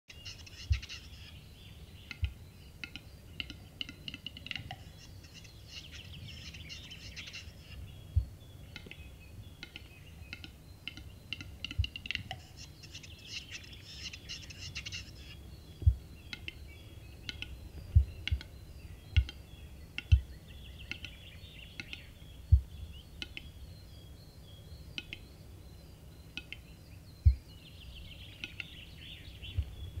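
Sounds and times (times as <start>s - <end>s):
bird display song clicks and hisses: 0.1s - 1.4s, 2.0s - 7.8s, 8.6s - 23.6s, 24.8s - 25.4s, 26.2s - 29.8s
sharp low thumps: 15.8s - 16.1s, 17.8s - 18.5s, 22.5s - 23.0s, 27.2s - 27.4s, 29.5s - 30.0s.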